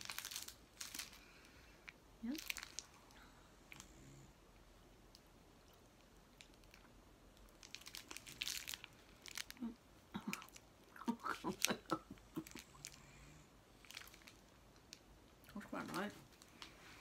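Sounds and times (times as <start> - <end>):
plastic wrapper crinkling: 0.0 - 3.2, 6.3 - 13.0, 13.8 - 16.8.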